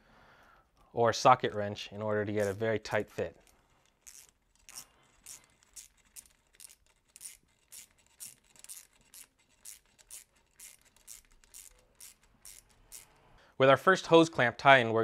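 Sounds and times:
screwdriver scraping clicks: 2.4s - 13.2s.

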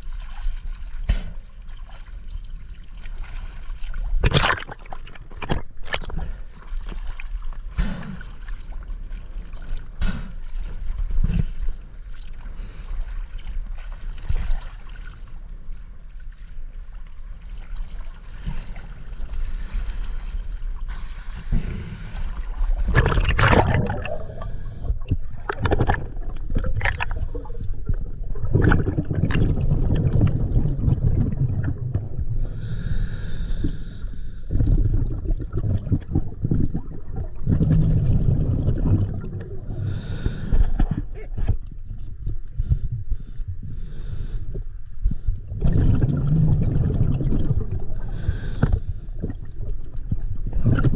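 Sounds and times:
water sloshing and splashing: 0.0s - 32.5s, 34.5s - 39.8s, 44.8s - 50.9s.

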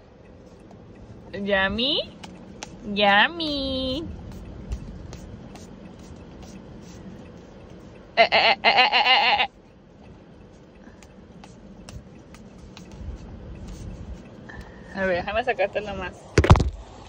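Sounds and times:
dogs licking: 1.8s - 8.0s.

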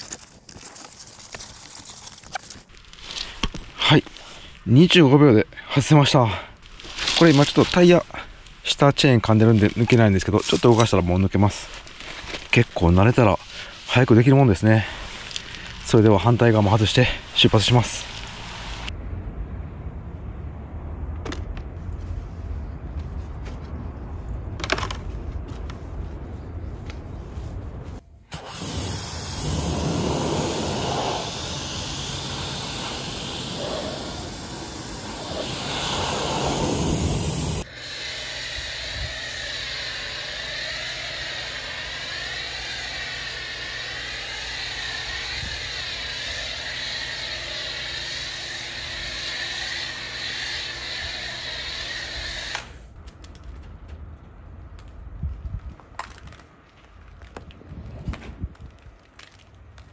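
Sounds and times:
spray hissing: 14.9s - 18.9s, 28.3s - 52.8s
pressure washer motor hum: 28.3s - 52.7s.

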